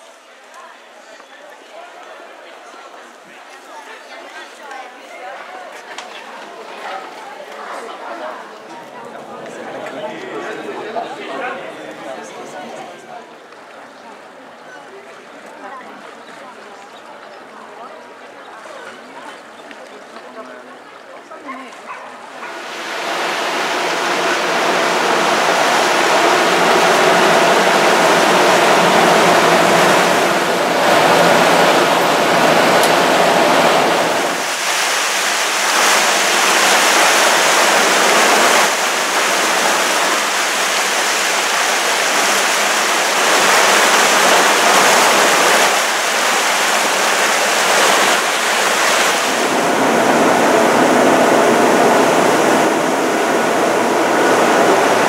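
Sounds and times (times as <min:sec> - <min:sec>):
water churned by boat: 0:21.6 - 0:55.0
wind buffeting microphone: 0:49.0 - 0:55.0.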